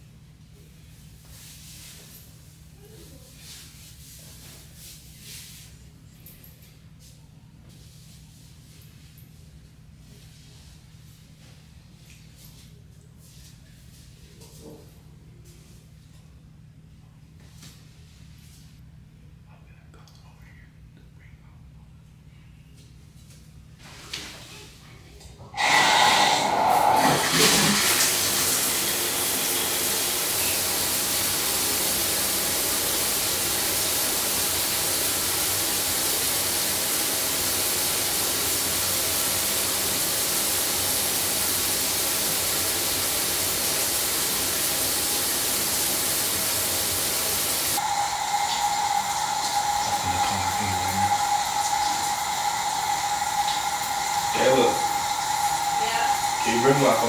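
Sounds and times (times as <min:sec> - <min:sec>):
shower water spray hissing: 0:25.6 - 0:57.0
steady whine: 0:47.8 - 0:57.0.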